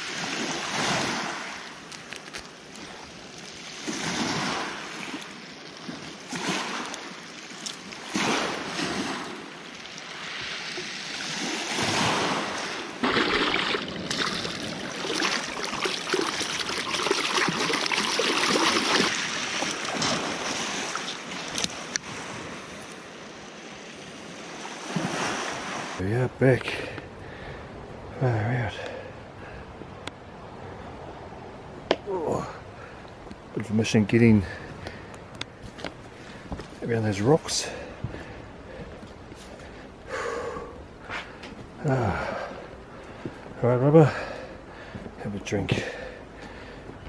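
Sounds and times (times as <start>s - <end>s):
surf on pebble beach: 0.0s - 27.1s.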